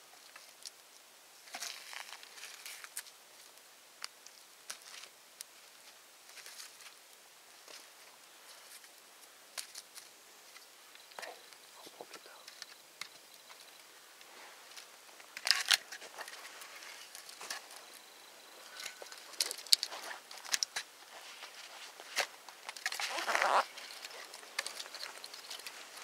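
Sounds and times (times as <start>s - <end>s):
campfire snaps and crackles: 0.1s - 26.0s
short rustle: 13.3s - 26.0s.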